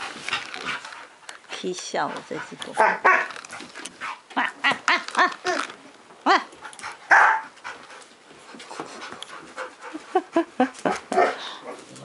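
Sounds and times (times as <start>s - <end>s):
dog yipping and barking: 2.8s - 3.3s, 7.1s - 7.5s
harsh dog bark: 2.8s - 3.3s, 7.1s - 7.5s, 11.1s - 11.4s.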